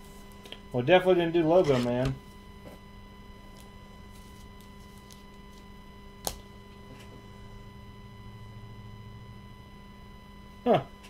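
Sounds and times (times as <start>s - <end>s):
electrical hum with whine: 0.0s - 11.0s.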